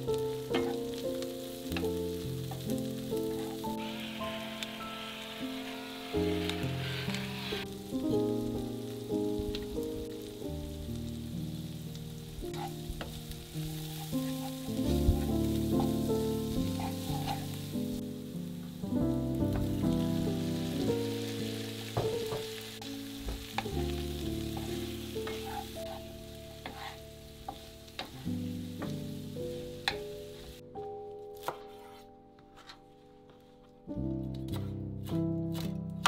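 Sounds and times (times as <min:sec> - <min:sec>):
vegetables sizzling in a frying pan: 0:00.0 - 0:30.6
background music: 0:00.0 - 0:36.0
wooden spatula stirring: 0:12.4 - 0:17.8, 0:23.2 - 0:28.5, 0:31.5 - 0:33.5.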